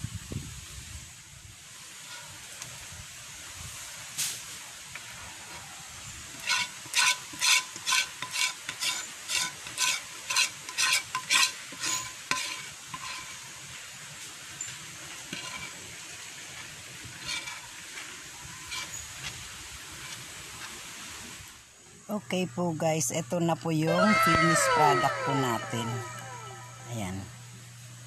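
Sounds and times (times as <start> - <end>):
metal spoon scraping metal wok: 6.3 - 13.6, 15.3 - 15.8, 17.1 - 17.8, 18.5 - 19.0.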